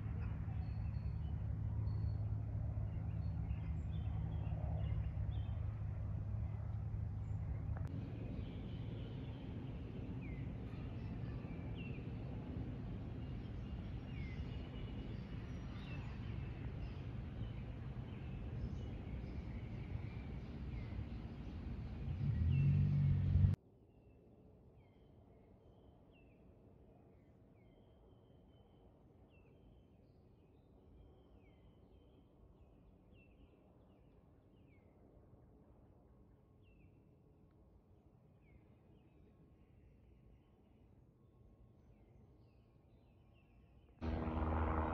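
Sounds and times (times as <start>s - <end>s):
steady low rumble: 0.0s - 23.6s, 44.0s - 44.9s.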